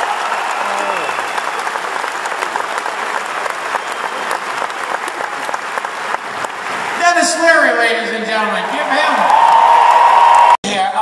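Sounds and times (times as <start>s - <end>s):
audience applauding: 0.0s - 7.5s, 8.4s - 10.6s.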